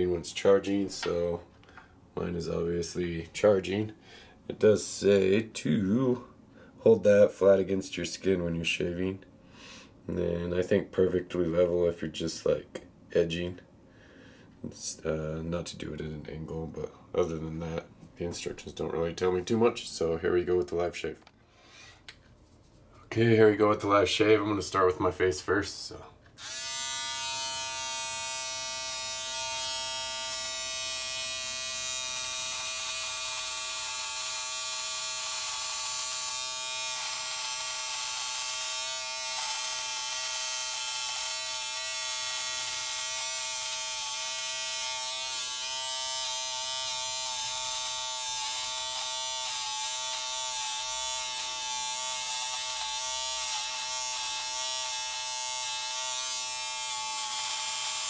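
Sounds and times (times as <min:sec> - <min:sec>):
electric shaver buzzing: 0:26.4 - 0:58.0.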